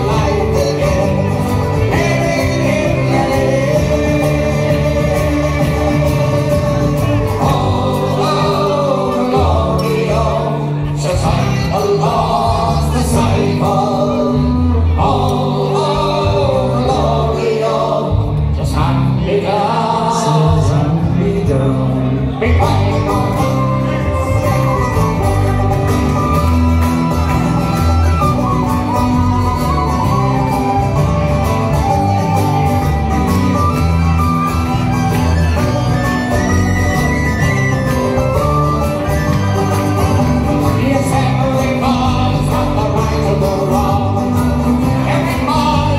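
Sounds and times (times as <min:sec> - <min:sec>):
men singing: 0:00.0 - 0:26.3, 0:34.8 - 0:45.9
folk band playing: 0:00.0 - 0:45.9
whistle playing a tune: 0:23.5 - 0:40.6.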